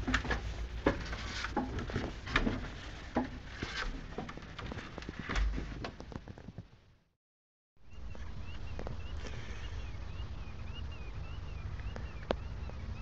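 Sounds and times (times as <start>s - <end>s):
wooden knocks and creaks: 0.0s - 6.7s.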